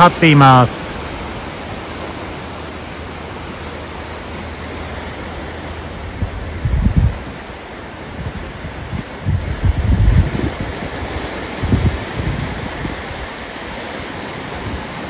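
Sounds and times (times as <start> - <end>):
sea surf breaking: 0.0 - 15.0
wind buffeting microphone: 5.8 - 15.0.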